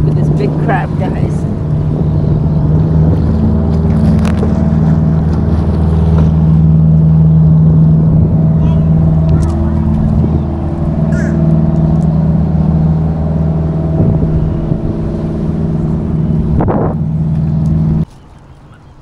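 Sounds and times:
engine droning: 0.0 - 18.1.

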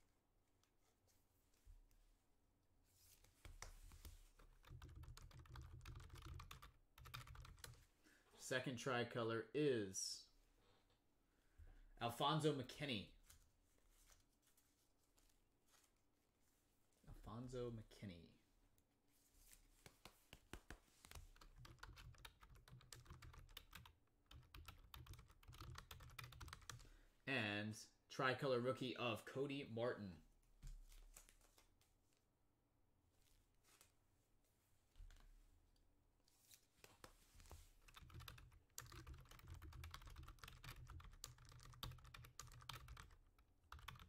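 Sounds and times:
faint keyboard typing: 3.4 - 7.9, 19.8 - 26.9, 36.8 - 44.0.

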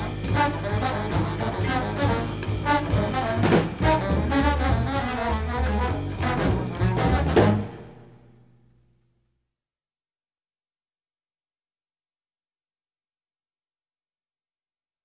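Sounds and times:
trombone lines: 0.0 - 8.0
drum strikes: 0.0 - 8.1
jazz quintet playing: 0.0 - 8.1
low bass notes: 0.0 - 8.5.

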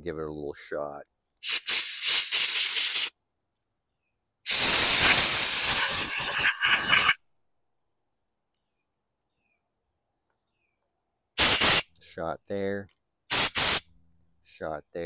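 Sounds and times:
pressurised spray hissing: 1.4 - 3.1, 4.5 - 7.2, 11.4 - 11.9, 13.3 - 13.8.

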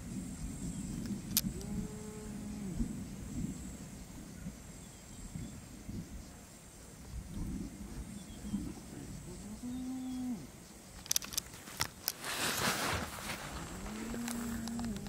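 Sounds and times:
hyena moaning call: 1.5 - 2.9, 9.3 - 10.5, 13.7 - 15.0
sharp clicks: 10.9 - 12.2.

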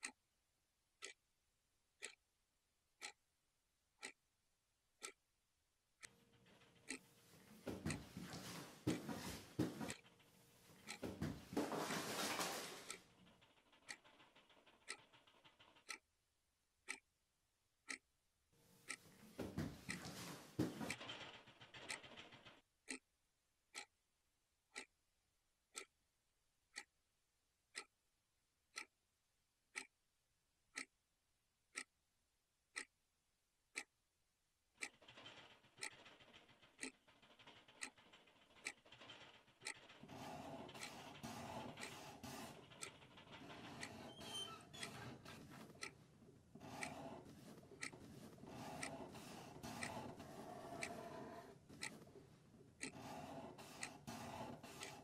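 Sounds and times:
clock ticking: 0.0 - 0.2, 1.0 - 1.2, 2.0 - 2.2, 2.9 - 3.2, 3.9 - 4.3, 4.9 - 5.2, 6.0 - 16.1, 16.8 - 17.1, 17.8 - 23.1, 23.7 - 24.0, 24.7 - 25.0, 25.7 - 26.0, 26.7 - 27.0, 27.7 - 28.0, 28.7 - 29.0, 29.7 - 30.0, 30.7 - 31.0, 31.7 - 31.9, 32.7 - 33.0, 33.7 - 34.0, 34.7 - 55.0.

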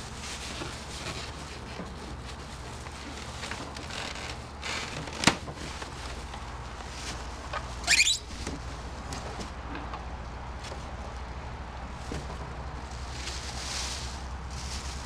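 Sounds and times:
foam packing squeaking: 7.0 - 8.5.

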